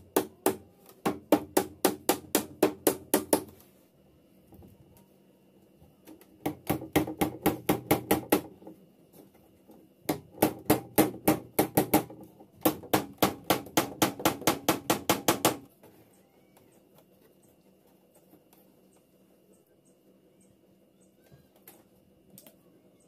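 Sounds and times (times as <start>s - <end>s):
nails tapped into plywood: 10.1s - 15.6s.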